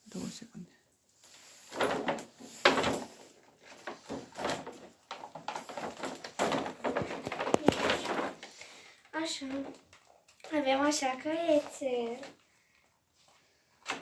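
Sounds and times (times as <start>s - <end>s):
plastic packaging crinkling: 1.4s - 12.4s.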